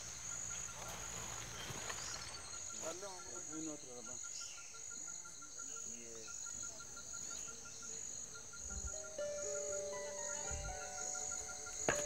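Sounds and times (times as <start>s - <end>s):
insects chirping: 0.0s - 12.0s
soft sustained music notes: 8.9s - 12.0s.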